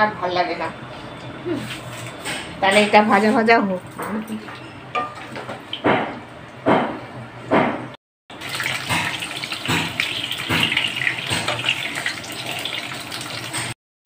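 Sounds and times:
potatoes sizzling in oil: 8.4s - 13.7s.

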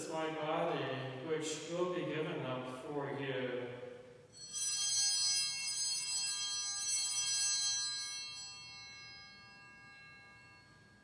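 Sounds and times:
altar bells ringing: 4.3s - 11.0s.

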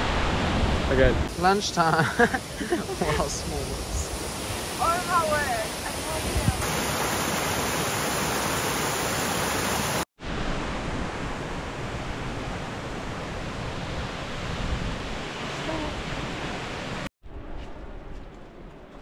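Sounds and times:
waterfall rushing: 1.3s - 10.7s.

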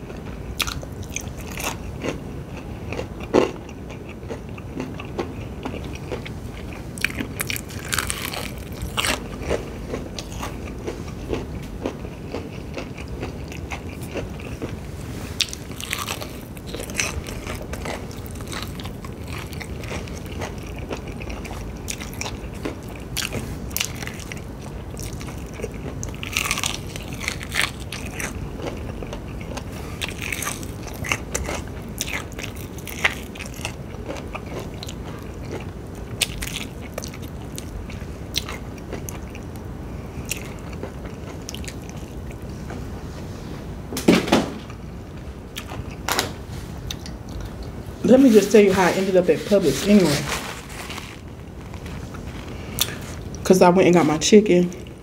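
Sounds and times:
low background noise: 0.0s - 55.0s
crunching fried chicken: 0.5s - 42.5s.

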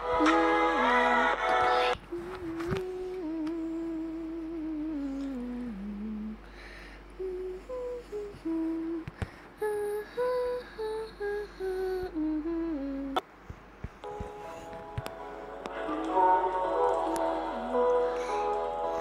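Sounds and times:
person humming a tune: 0.0s - 6.5s, 7.2s - 13.2s.

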